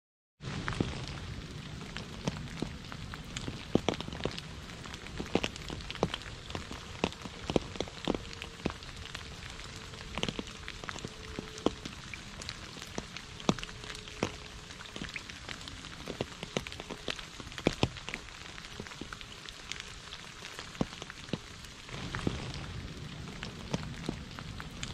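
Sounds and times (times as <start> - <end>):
steady rain hiss: 0.4 - 24.9.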